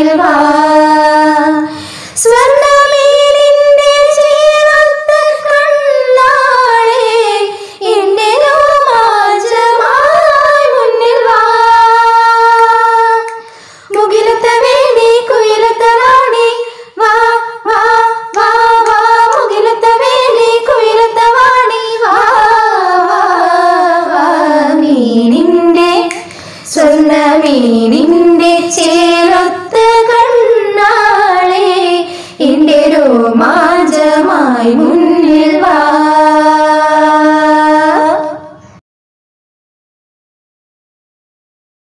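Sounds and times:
women singing a cappella: 0.0s - 38.8s
breaths between phrases: 1.7s - 2.2s, 13.4s - 14.0s, 26.2s - 26.7s, 32.1s - 32.4s.

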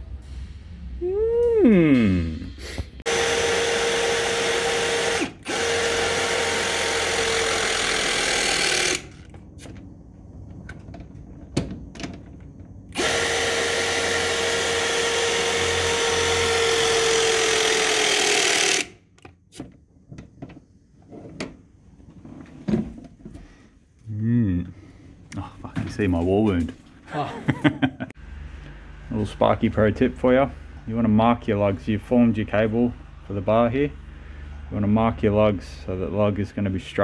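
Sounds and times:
hydraulic crimper motor whine: 3.1s - 9.3s, 12.9s - 19.0s.

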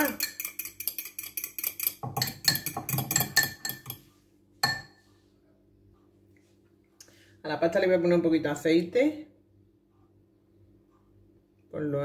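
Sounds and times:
metal spoon clinking in ceramic bowl: 0.0s - 4.0s, 4.6s - 5.0s.

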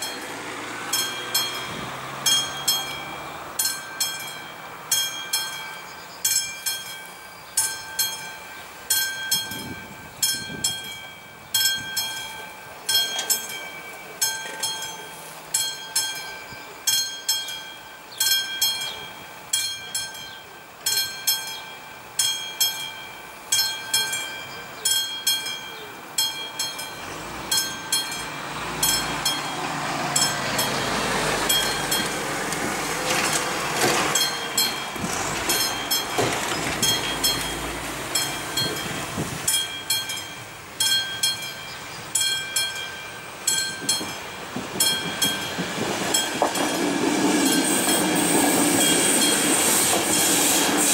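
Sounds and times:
lorry passing close: 0.0s - 5.0s, 26.8s - 40.7s
level-crossing warning bell: 0.0s - 50.9s.

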